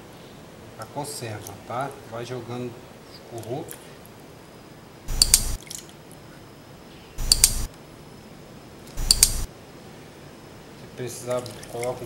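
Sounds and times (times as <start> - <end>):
short click sound effects: 5.1 - 5.6, 7.2 - 7.7, 9.0 - 9.5.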